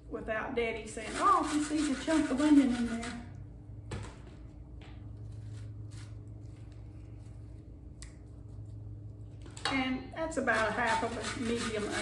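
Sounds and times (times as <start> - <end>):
onion grated on metal grater: 0.9 - 3.3, 10.4 - 12.0.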